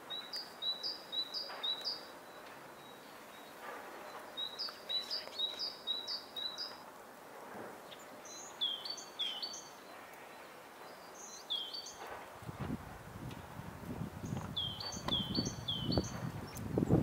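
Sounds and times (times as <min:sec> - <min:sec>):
tits singing: 0:00.0 - 0:06.8, 0:14.2 - 0:17.0
background hiss: 0:00.0 - 0:17.0.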